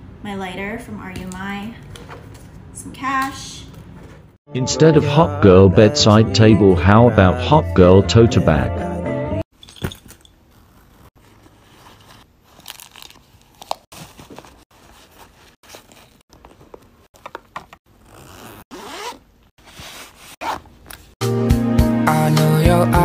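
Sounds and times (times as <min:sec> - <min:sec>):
music: 0:04.5 - 0:09.4, 0:21.2 - 0:23.0
zippers: 0:10.4 - 0:12.1, 0:17.9 - 0:21.1.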